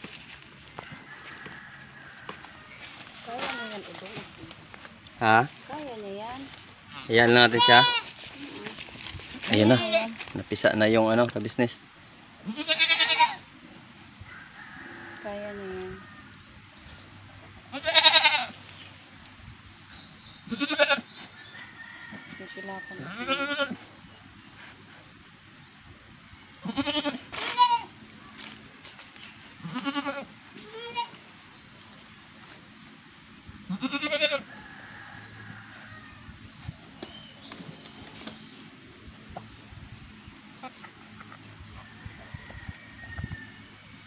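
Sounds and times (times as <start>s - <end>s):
goat bleating: 6.9s - 8.7s, 9.5s - 10.2s, 12.4s - 13.5s, 17.7s - 18.6s, 20.4s - 21.2s, 23.0s - 23.9s, 26.6s - 28.0s, 29.6s - 31.2s, 33.6s - 34.5s.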